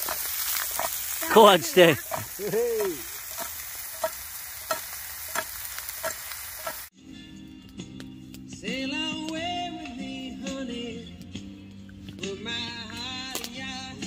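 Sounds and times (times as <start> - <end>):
food sizzling in frying pan: 0.0 - 6.9.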